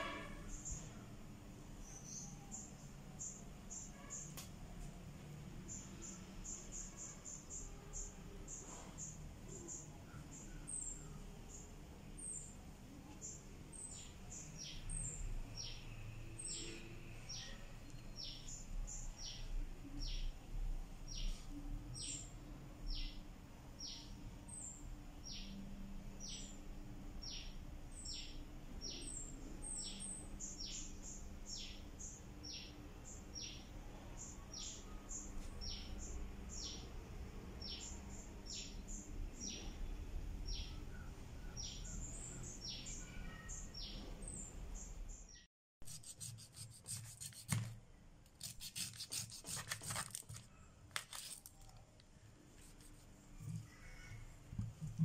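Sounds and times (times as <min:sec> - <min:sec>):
bird chirping: 0:40.5 - 0:47.5.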